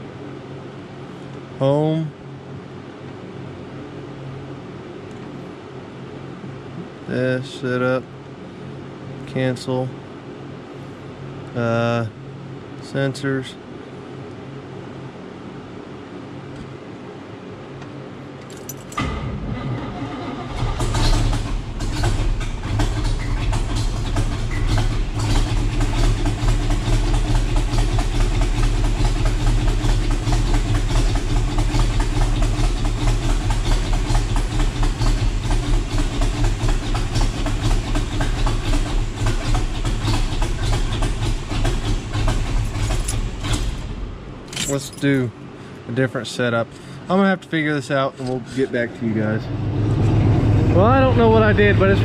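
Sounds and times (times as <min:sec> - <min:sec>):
car engine cranking and idling: 0:17.6 - 0:52.0.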